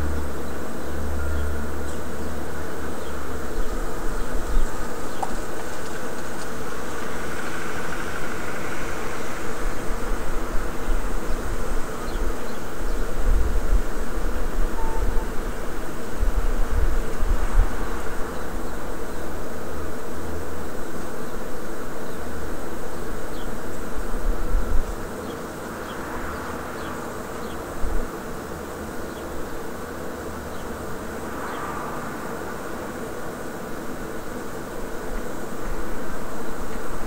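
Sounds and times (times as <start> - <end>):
steady hum: 0.0 - 37.0
wind rumbling on microphone: 1.8 - 19.4.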